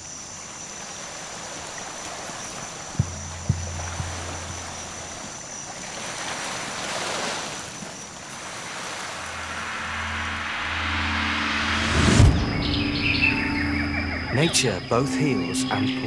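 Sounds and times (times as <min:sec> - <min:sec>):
small waves washing on shore: 0:00.0 - 0:10.5
low steady drone: 0:03.0 - 0:05.2, 0:09.3 - 0:16.0.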